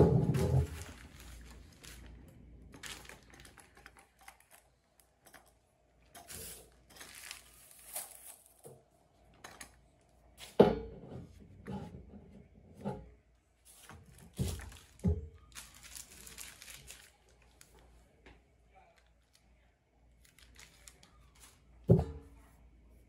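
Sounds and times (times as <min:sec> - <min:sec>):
crinkling plastic wrapping: 0:00.0 - 0:05.4, 0:06.2 - 0:08.7, 0:13.6 - 0:18.1, 0:18.7 - 0:21.9.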